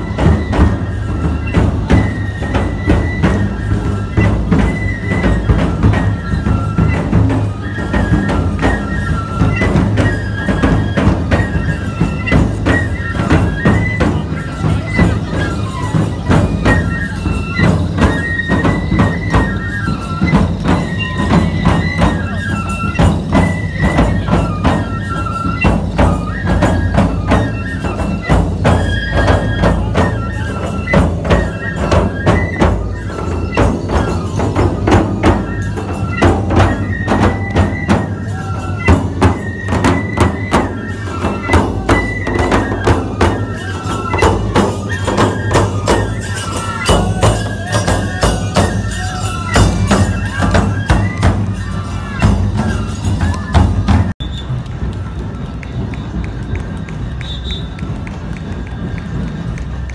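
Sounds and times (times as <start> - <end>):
bamboo flute melody: 0.0 - 59.9
large taiko drums: 0.0 - 59.9.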